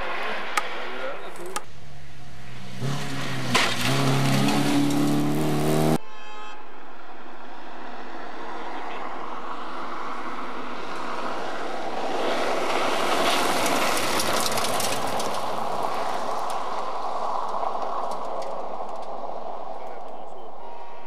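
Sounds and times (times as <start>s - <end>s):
rally car passing at speed: 0.0s - 6.0s, 6.8s - 20.6s
gravel clattering: 2.8s - 5.4s, 12.1s - 20.4s.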